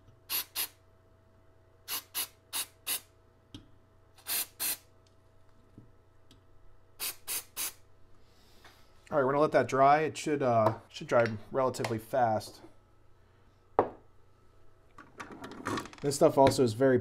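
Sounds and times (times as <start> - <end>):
aerosol spray hissing: 7.0 - 7.8.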